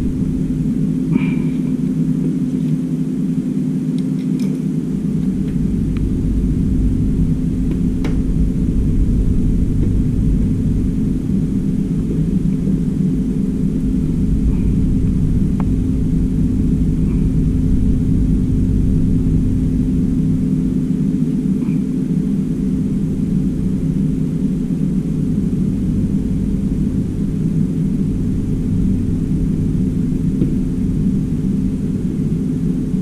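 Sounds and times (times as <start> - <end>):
constant hum: 0.0 - 33.0
low rumble: 0.0 - 33.0.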